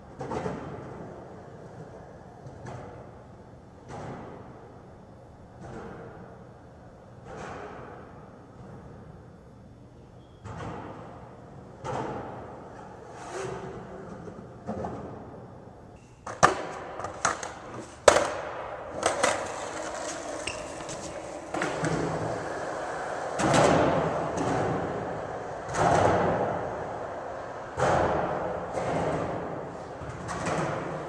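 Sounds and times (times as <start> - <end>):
skateboard wheels rolling on concrete: 0.0 - 3.2, 16.3 - 31.0
skateboard clacks: 16.2 - 31.0.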